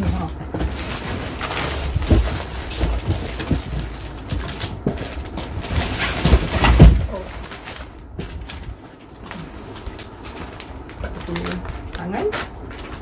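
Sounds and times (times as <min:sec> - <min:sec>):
dull thumps of parts in box: 0:00.0 - 0:07.5
plastic wrapping rustling: 0:00.0 - 0:13.0
cardboard box scraping: 0:00.1 - 0:07.5.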